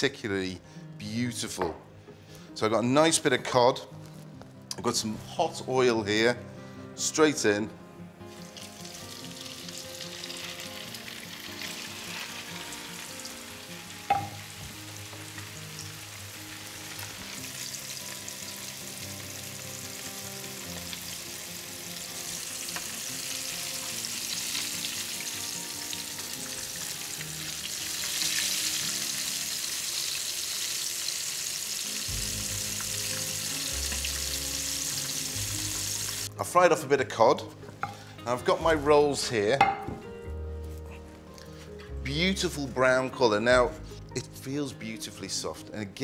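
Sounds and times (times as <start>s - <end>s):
fish sizzling in frying pan: 8.4s - 36.3s.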